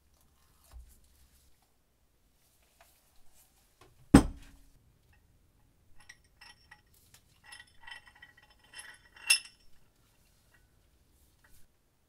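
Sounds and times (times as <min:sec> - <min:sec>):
metal vise screw clinking: 0:06.0 - 0:09.9.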